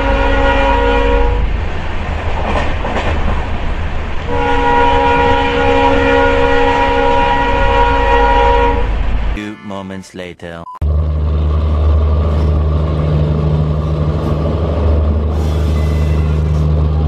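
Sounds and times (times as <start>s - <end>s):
multi-tone train horn: 0.0s - 1.5s, 4.3s - 9.9s, 15.3s - 16.8s
moving train rumble: 0.0s - 9.5s, 10.8s - 17.0s.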